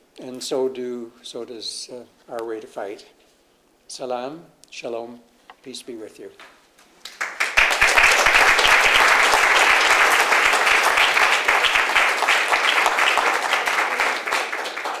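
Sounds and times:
audience applauding: 7.1s - 15.0s.

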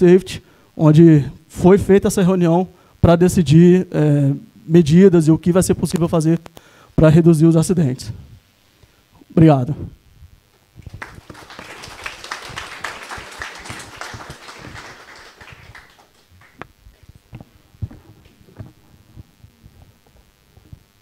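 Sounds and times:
audience applauding: 10.8s - 16.6s.

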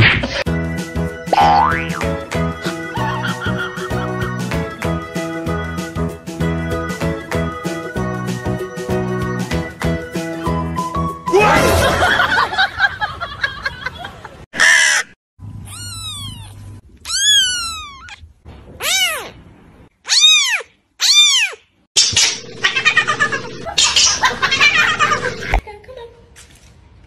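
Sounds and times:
cat wavering cry: 15.6s - 19.4s, 20.0s - 21.7s
kitten mewing: 15.6s - 19.4s, 20.1s - 21.6s.

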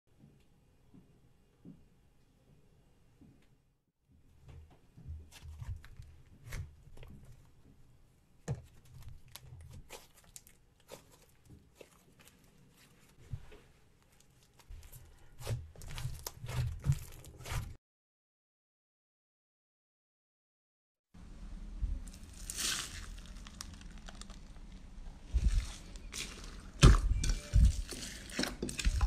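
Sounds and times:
slime crackling and popping: 22.1s - 24.9s, 25.5s - 29.0s.

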